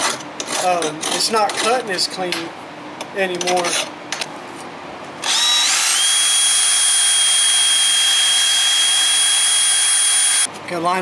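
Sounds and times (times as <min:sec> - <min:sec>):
power tool motor whining: 0:05.2 - 0:10.5.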